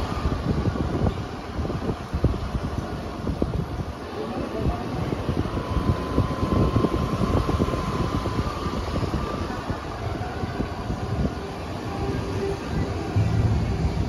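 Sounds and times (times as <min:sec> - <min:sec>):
wind rumbling on microphone: 0:00.0 - 0:14.0
motorcycle running at low speed: 0:05.0 - 0:14.0.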